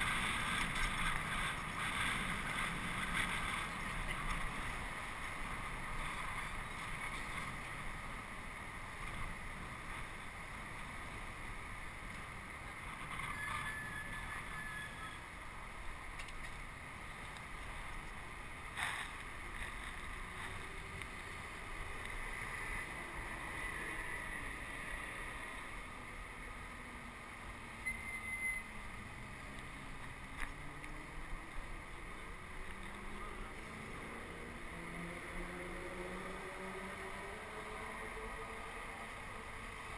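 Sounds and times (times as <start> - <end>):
wind from riding fast: 0.0 - 14.5
rolling rumble over pavement: 0.0 - 39.9.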